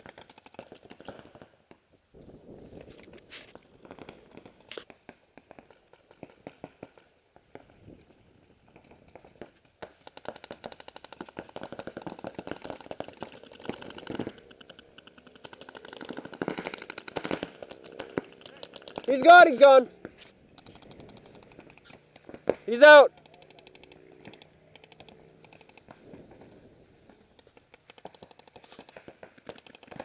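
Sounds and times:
paintball markers firing: 0.0s - 1.8s, 2.7s - 30.0s.

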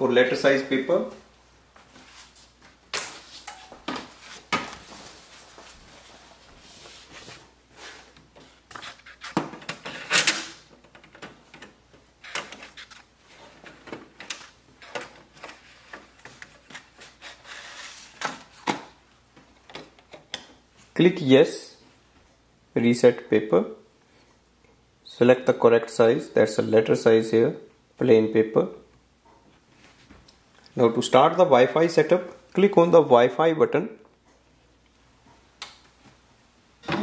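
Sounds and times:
paper stack rustling and scraping: 4.0s - 10.2s, 12.2s - 18.9s.

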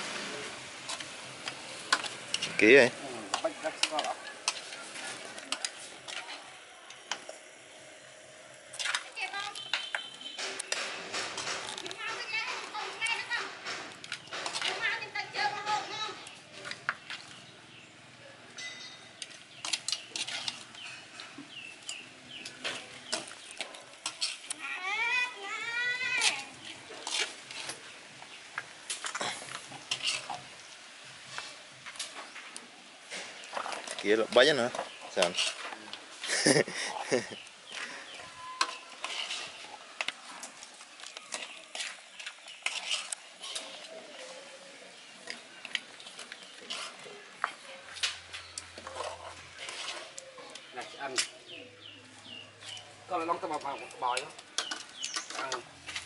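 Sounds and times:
birds chirping: 0.0s - 56.0s
utensil scraping metal pan: 8.8s - 15.9s, 18.6s - 24.5s, 26.1s - 28.0s, 29.6s - 30.6s, 33.1s - 35.9s, 37.0s - 40.6s, 41.3s - 44.4s, 46.0s - 51.3s.

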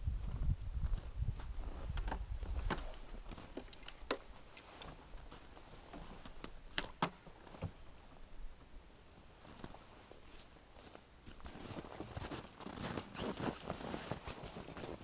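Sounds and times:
fabric cover rustling: 11.5s - 15.0s.

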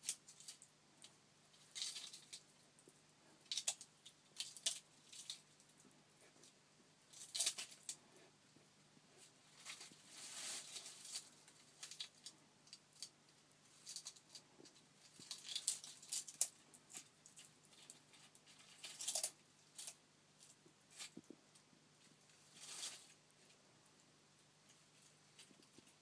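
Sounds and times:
lizard crunching food: 0.0s - 8.0s, 9.6s - 21.3s.

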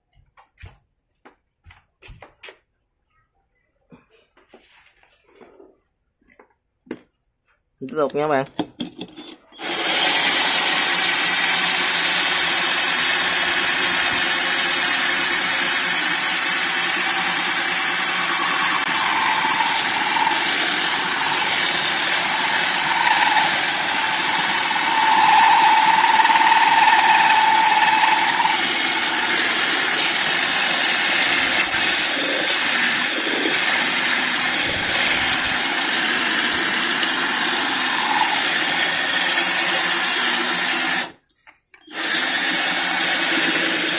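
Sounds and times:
hole saw grinding glass: 8.9s - 40.9s
cordless drill running: 9.6s - 41.2s, 41.9s - 43.9s
high whine: 16.4s - 31.8s.

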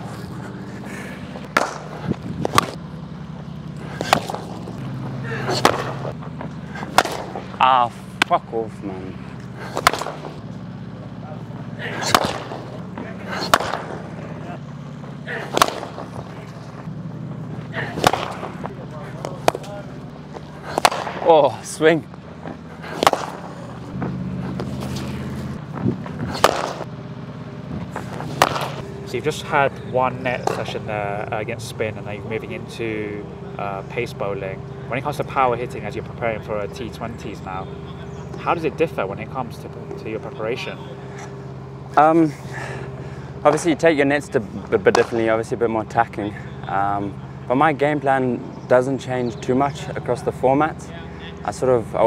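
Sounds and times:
steady low hum: 0.0s - 52.0s
cricket bat striking ball: 1.4s - 2.8s, 3.8s - 8.4s, 9.3s - 10.4s, 11.6s - 16.9s, 17.6s - 21.3s, 22.1s - 26.9s, 27.8s - 29.1s, 29.8s - 30.9s, 44.8s - 45.4s.

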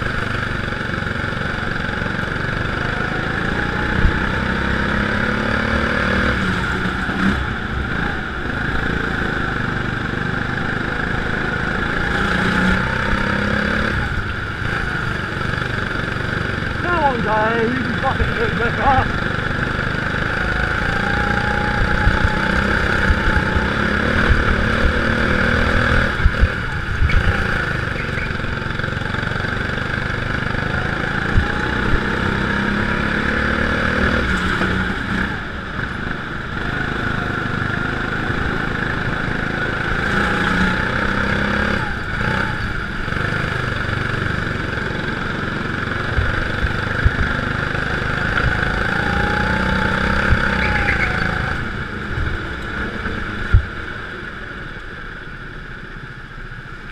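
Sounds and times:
go-kart engine revving: 0.0s - 55.6s
wind rushing on camera: 19.0s - 55.4s.

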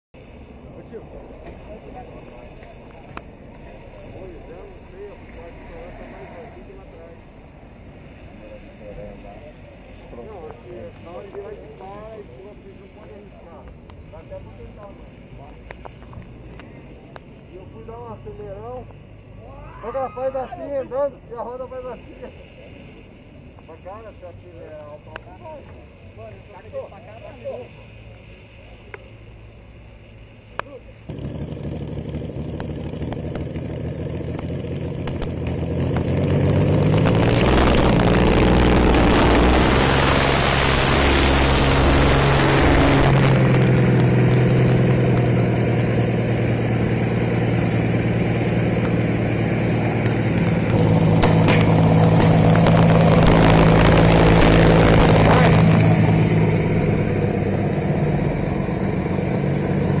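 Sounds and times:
motorcycle engine starting and revving: 21.5s - 60.0s.

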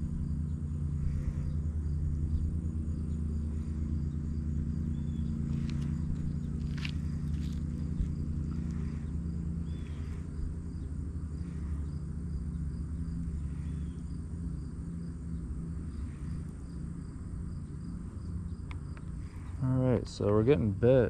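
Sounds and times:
insects chirping: 0.0s - 21.0s
low rumble: 0.0s - 21.0s
short bird calls: 8.6s - 10.4s.

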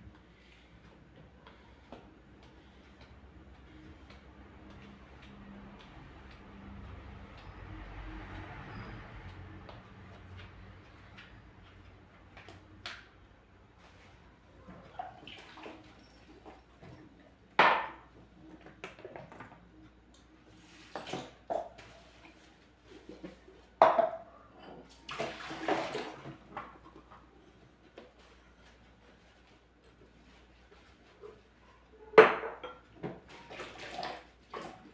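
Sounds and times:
water splashing in sink: 14.9s - 16.6s, 25.0s - 26.6s, 33.2s - 34.9s
dishes and glass knocking: 23.8s - 24.3s.

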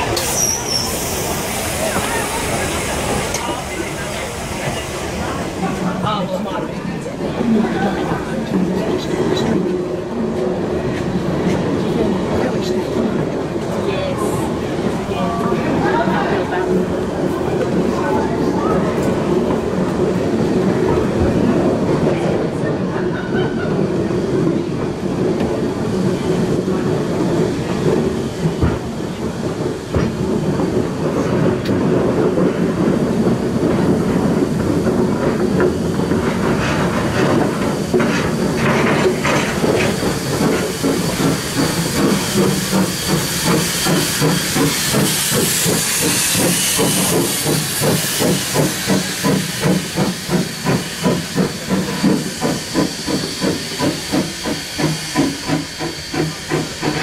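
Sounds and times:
steam hiss: 0.0s - 6.1s, 24.8s - 57.0s
train wheels rumbling: 0.0s - 57.0s.

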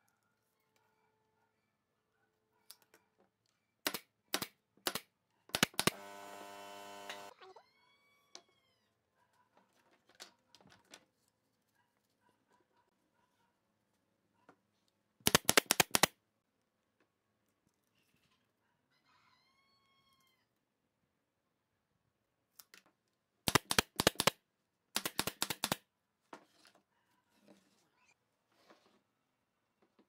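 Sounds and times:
nail gun firing into wood: 3.8s - 6.1s, 15.3s - 16.1s, 23.5s - 24.4s, 25.0s - 25.8s.

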